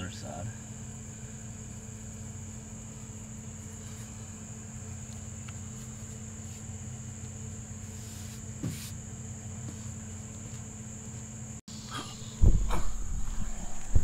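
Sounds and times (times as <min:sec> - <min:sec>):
steady background hum: 0:00.0 - 0:14.0
faint rustle: 0:02.8 - 0:09.0
high-pitched whine: 0:11.7 - 0:14.0.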